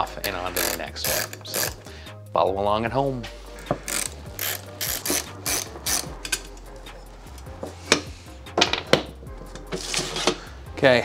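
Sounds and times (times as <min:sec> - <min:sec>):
hand ratchet clicking: 0:00.2 - 0:01.9, 0:03.7 - 0:06.7.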